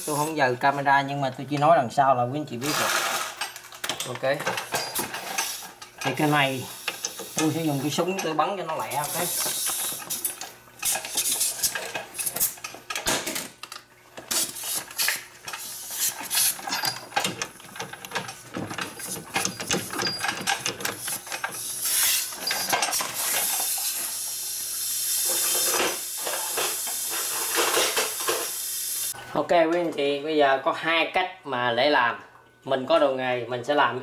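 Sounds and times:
impact wrench running: 4.5 - 12.6.

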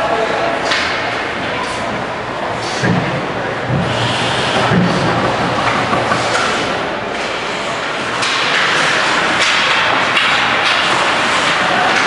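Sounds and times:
hockey sticks knocking: 4.5 - 6.7.

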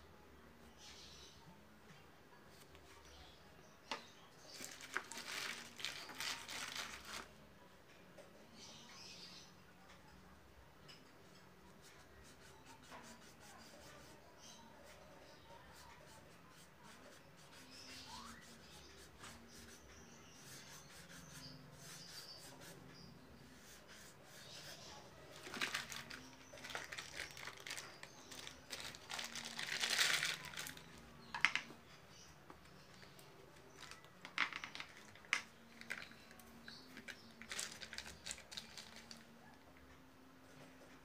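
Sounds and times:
rustling and crinkling: 3.9 - 7.4, 24.4 - 31.8, 32.6 - 39.4.

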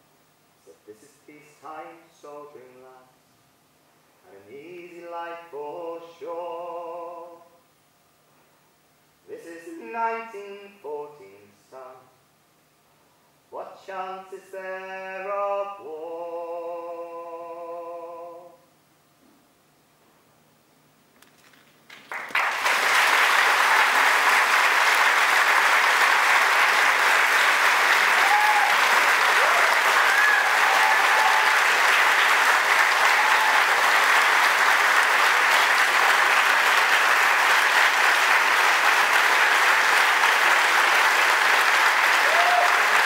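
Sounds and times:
audience applauding: 21.9 - 43.0.

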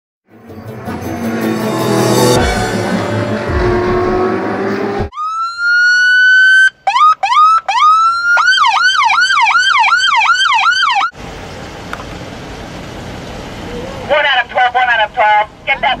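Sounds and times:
intro music: 0.3 - 5.1
police siren wailing and yelping: 5.1 - 11.1.

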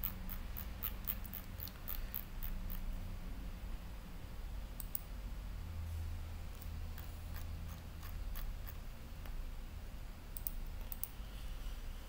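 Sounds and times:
steady low hum: 0.0 - 12.0
computer mouse clicks: 4.8 - 5.1, 10.4 - 11.2.

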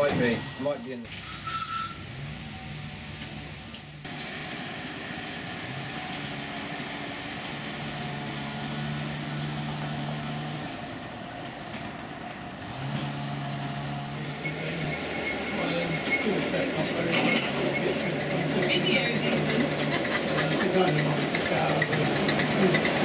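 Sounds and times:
miniature train running on track: 0.0 - 2.6, 10.6 - 23.0.

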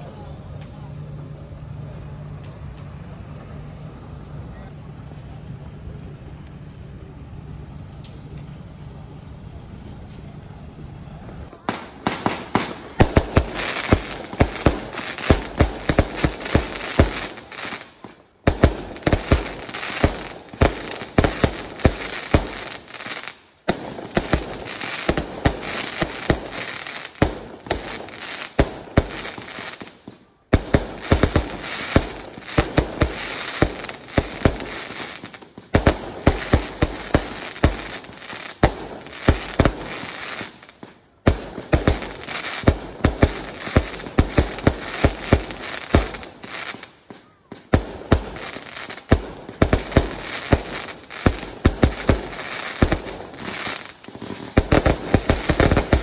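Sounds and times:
firework crackling bursts: 11.5 - 56.0.

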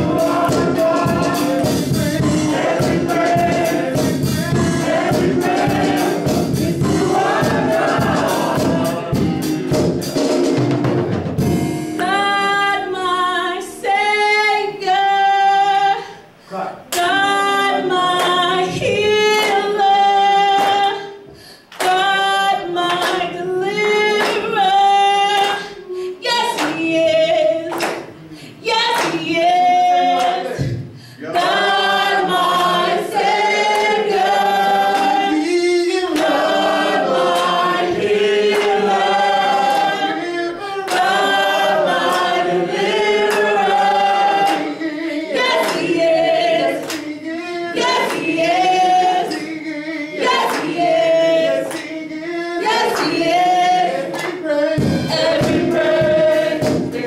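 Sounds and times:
congregation singing: 0.0 - 57.0.

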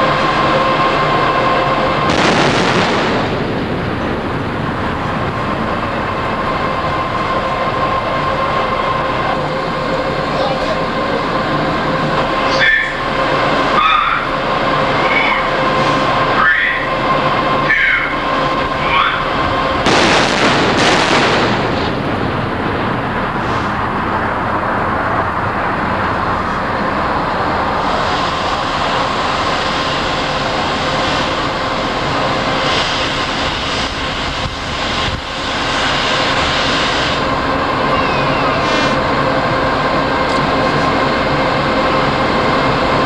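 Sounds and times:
rushing background noise: 0.0 - 43.0
large gun blast: 2.1 - 4.3, 19.8 - 22.4.

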